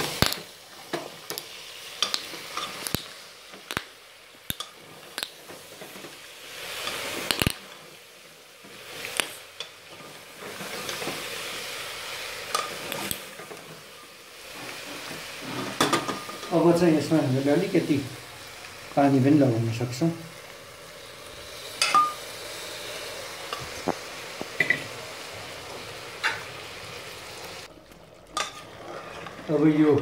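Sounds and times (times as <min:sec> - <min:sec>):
meat sizzling: 0:00.0 - 0:30.0
metal spoon scraping pot: 0:28.4 - 0:29.6.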